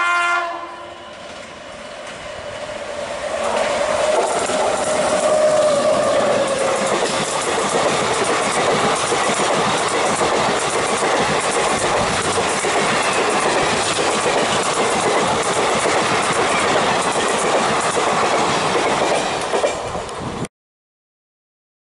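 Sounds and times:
train wheels rushing on rails: 1.0s - 20.5s
clickety-clack over rail joints: 3.4s - 20.4s.

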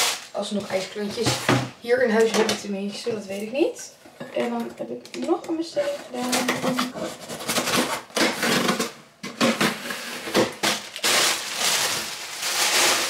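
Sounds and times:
plastic packing crinkling: 5.2s - 13.0s
cardboard box scratching and crackling: 5.8s - 8.9s.

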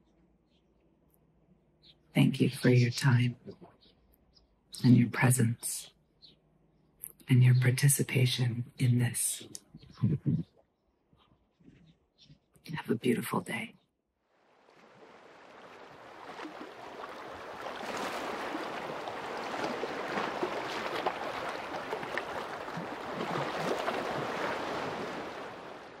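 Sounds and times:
ocean surf washing in: 15.0s - 26.0s.

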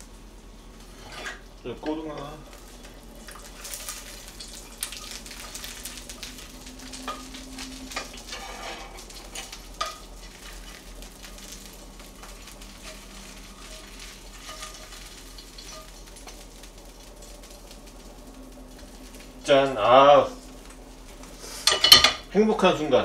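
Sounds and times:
oil sizzling in a frying pan: 0.0s - 23.0s
wooden spatula scraping a pan: 0.8s - 1.4s, 6.9s - 11.6s, 12.2s - 16.4s.

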